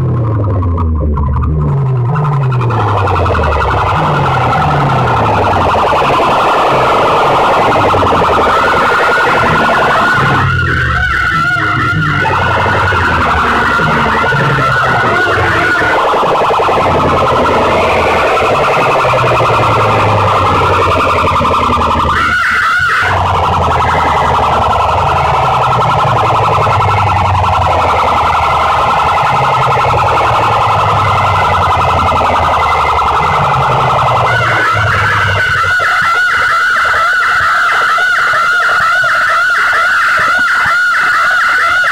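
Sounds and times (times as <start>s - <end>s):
deep bass notes: 0.0s - 35.7s
distorted siren-like wailing music: 0.0s - 41.9s.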